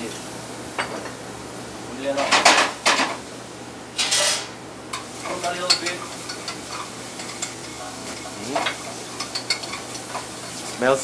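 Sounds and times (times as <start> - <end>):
food sizzling in hot oil: 4.0 - 11.0
spoon scraping saucepan: 5.2 - 10.8.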